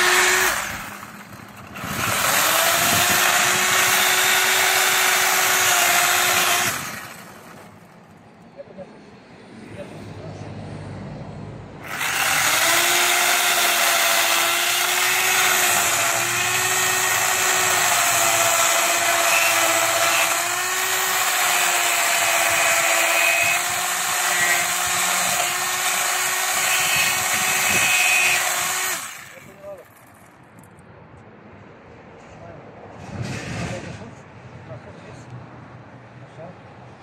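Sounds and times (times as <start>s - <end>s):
power tool running: 0.0s - 8.0s, 11.8s - 30.0s.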